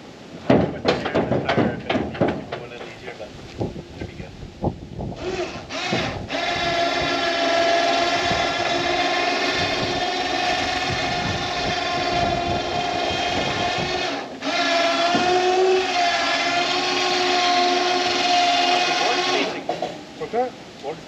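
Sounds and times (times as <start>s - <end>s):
small motor whining: 5.2s - 19.7s.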